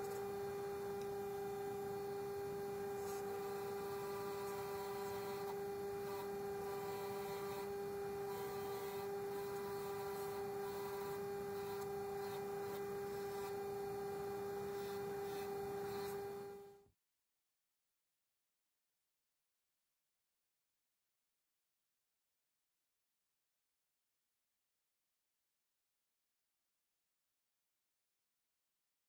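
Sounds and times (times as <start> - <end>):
bench grinder motor hum: 0.0 - 16.8.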